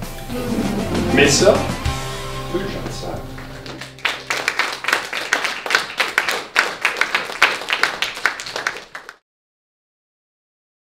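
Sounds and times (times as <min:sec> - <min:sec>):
audience applauding: 0:02.8 - 0:09.2.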